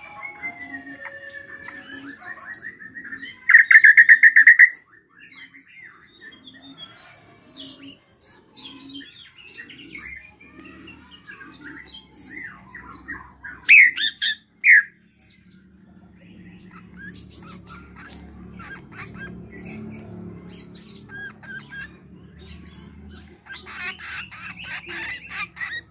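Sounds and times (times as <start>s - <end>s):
bird singing chirps and whistles: 0.0s - 6.4s, 11.0s - 14.9s.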